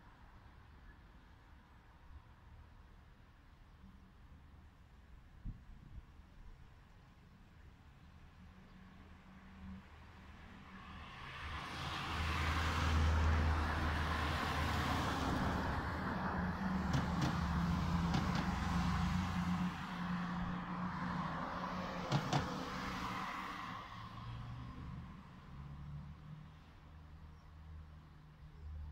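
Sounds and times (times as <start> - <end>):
traffic noise: 0.0 - 28.9
car passing: 10.3 - 26.7.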